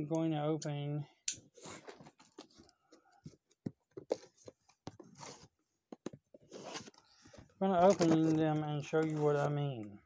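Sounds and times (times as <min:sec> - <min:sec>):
knife scraping cardboard: 0:06.4 - 0:07.1.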